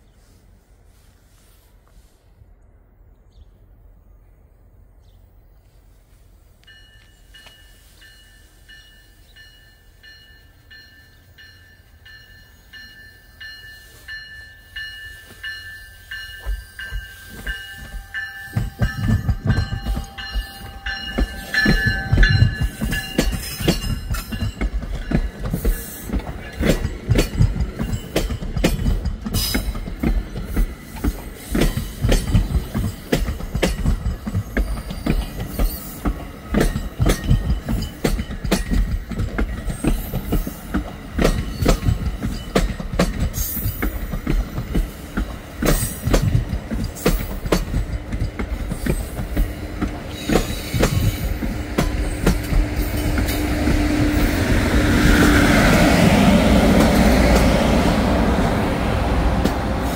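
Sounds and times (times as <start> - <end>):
steady high ringing tone: 6.7 - 24.8
train wheels clattering over rail joints: 16.2 - 58.5.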